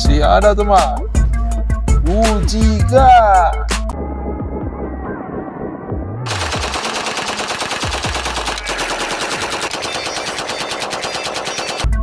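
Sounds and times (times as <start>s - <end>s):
submachine gun automatic fire: 6.3s - 12.0s.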